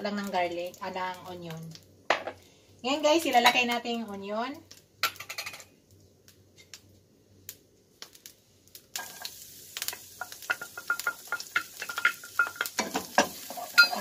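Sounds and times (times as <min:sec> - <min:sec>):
garlic and onion sizzling in oil: 0:00.0 - 0:14.0
metal dish clinking: 0:10.5 - 0:14.0.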